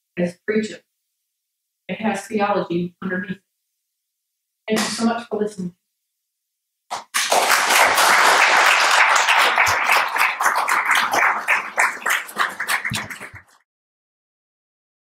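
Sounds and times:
audience applauding: 6.9 - 13.6.

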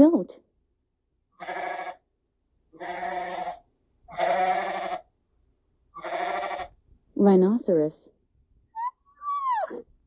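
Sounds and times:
goat bleating: 1.4 - 2.0, 2.8 - 5.1, 6.0 - 6.7.

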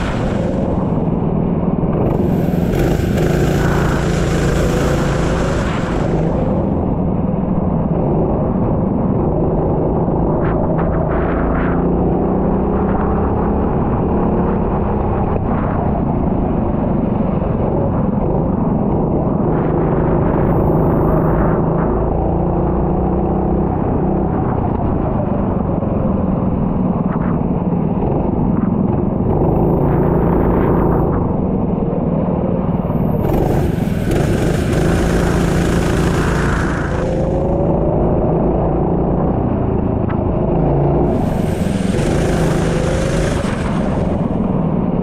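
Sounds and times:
racing kart engine: 0.0 - 7.2, 32.1 - 45.0.

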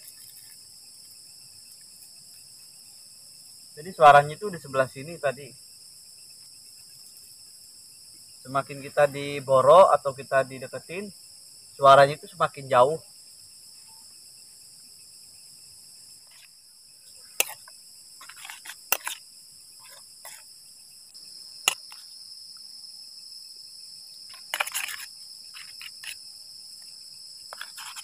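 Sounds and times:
night insects chirring: 0.0 - 28.0
metal fork scraping enamel bowl: 17.4 - 19.2, 19.8 - 20.4, 24.3 - 26.2, 27.5 - 28.0.

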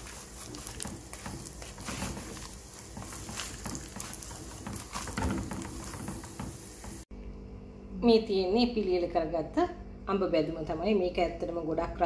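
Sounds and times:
spatula scraping clay pot: 0.0 - 7.0
food pieces knocking against pot: 0.5 - 7.0.

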